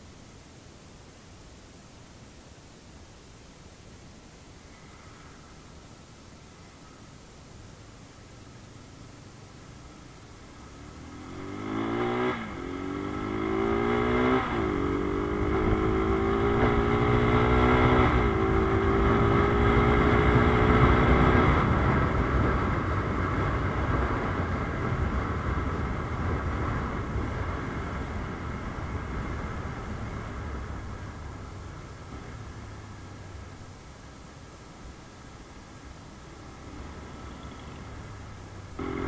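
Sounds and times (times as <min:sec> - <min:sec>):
motorcycle engine accelerating: 0:10.6 - 0:31.2, 0:36.3 - 0:39.0
wind noise: 0:11.4 - 0:32.4.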